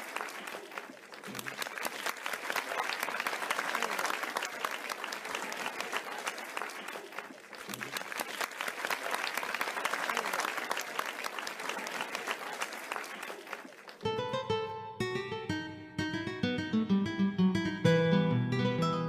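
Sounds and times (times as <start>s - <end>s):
audience applauding: 0.0s - 14.6s
plucked guitar music: 14.0s - 19.0s.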